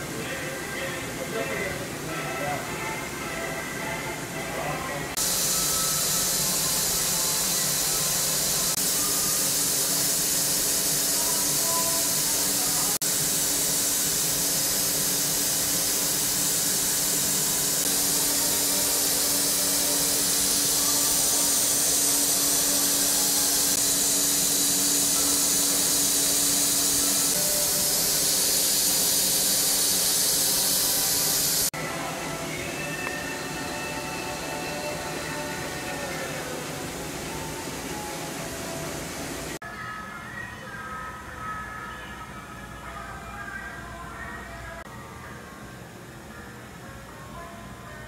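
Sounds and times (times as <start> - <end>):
milling machine cutting hiss: 5.2 - 31.7
machine hum: 5.2 - 39.6.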